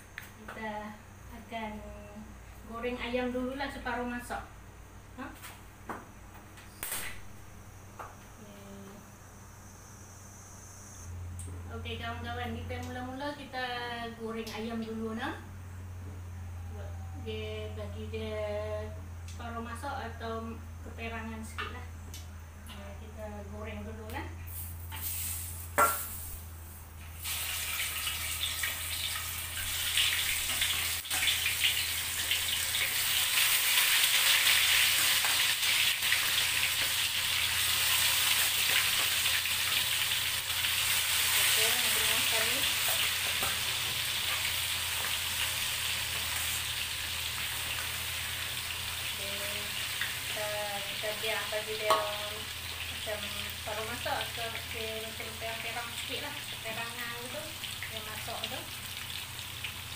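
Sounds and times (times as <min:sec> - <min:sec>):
chicken sizzling in hot oil: 0:24.5 - 0:26.5, 0:27.2 - 0:59.9.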